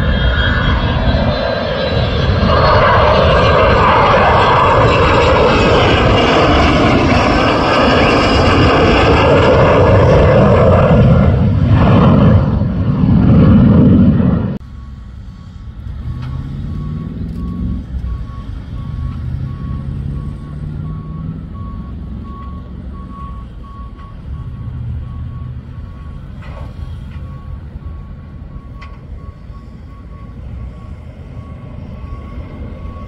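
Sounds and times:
reversing alarm beeping: 0:14.6 - 0:33.0
truck diesel engine accelerating: 0:14.6 - 0:33.0.

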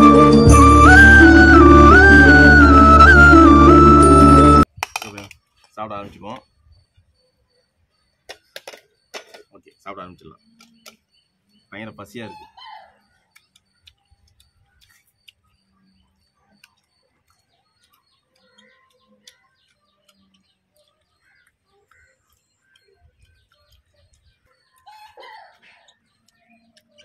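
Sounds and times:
faint birds chirping: 0:05.4 - 0:27.0
eating and chewing: 0:12.9 - 0:27.0.

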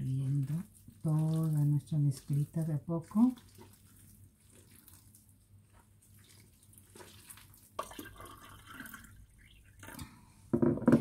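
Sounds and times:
hands working flour: 0:00.0 - 0:08.2
liquid pouring into a glass mug: 0:06.2 - 0:10.1.

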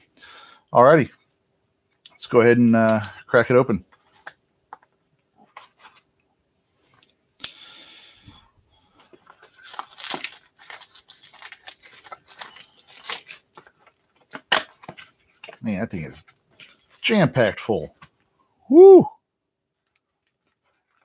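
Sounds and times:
cellophane crinkling and tearing: 0:08.9 - 0:17.2, 0:19.8 - 0:21.0
knife slitting shrink wrap: 0:09.4 - 0:13.6.

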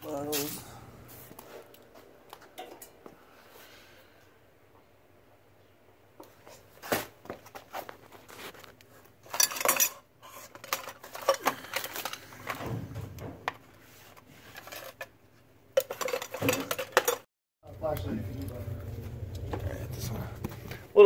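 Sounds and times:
small objects clinking and rustling: 0:08.3 - 0:12.6, 0:14.4 - 0:15.1, 0:15.8 - 0:17.3.

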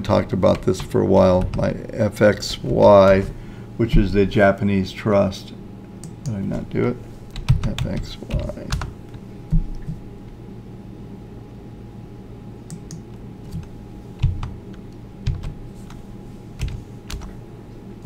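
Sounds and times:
low electrical hum: 0:00.0 - 0:18.0
computer keyboard keystrokes: 0:07.3 - 0:08.9, 0:12.7 - 0:16.0, 0:16.6 - 0:17.3.

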